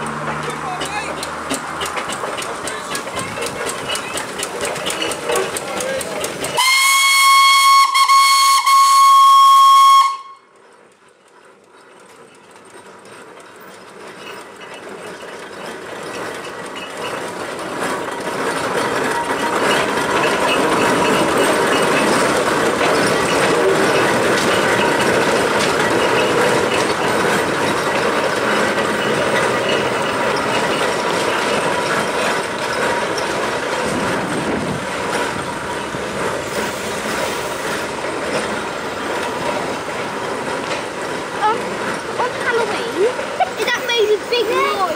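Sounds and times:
iron rolls on road: 0.0s - 44.9s
steam engine running: 0.0s - 44.9s
steam whistle blast: 6.6s - 10.5s.

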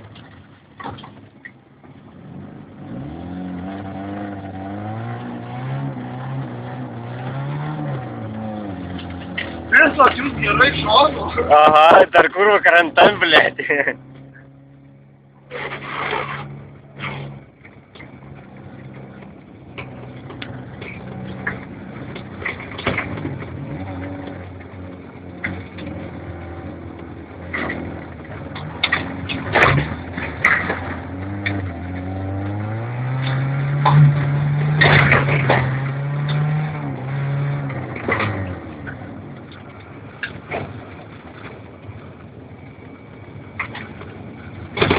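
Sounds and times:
vehicle engine running: 0.0s - 44.9s.

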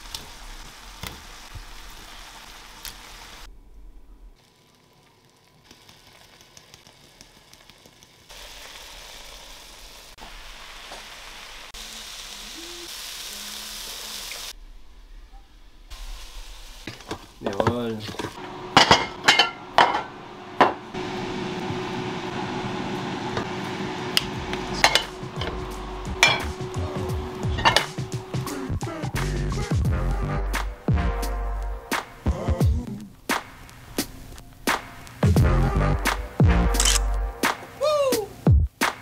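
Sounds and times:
chicken sizzling in a pan: 0.0s - 3.5s, 4.4s - 14.6s, 15.9s - 28.7s
dishes and cutlery clinking: 16.9s - 20.8s, 24.8s - 25.5s, 26.2s - 26.6s, 27.6s - 28.0s.

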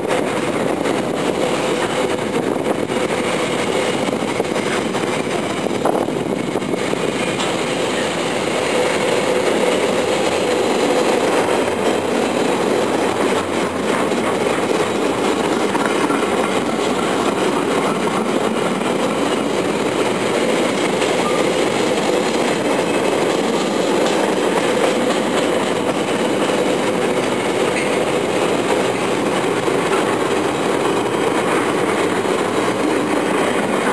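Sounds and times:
freight train wheels rumbling: 0.0s - 33.9s.

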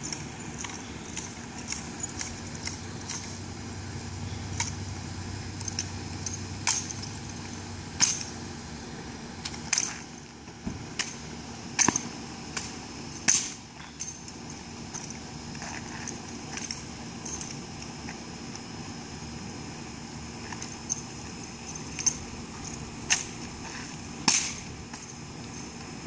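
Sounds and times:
light metallic rattles: 0.0s - 8.5s, 10.9s - 18.2s, 20.4s - 25.9s
steady low hum: 0.0s - 26.0s.

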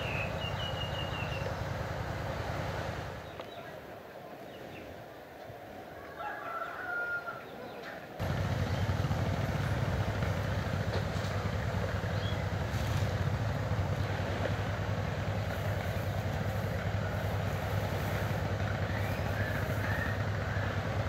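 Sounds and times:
distant rooster crowing: 5.9s - 8.0s
steady low rumble: 8.2s - 21.0s.

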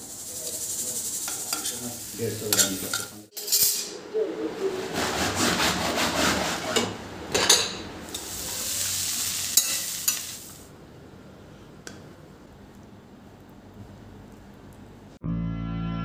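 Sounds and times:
food sizzling in pan: 0.0s - 3.3s, 8.0s - 10.7s
steel utensils clinking: 2.4s - 4.0s.

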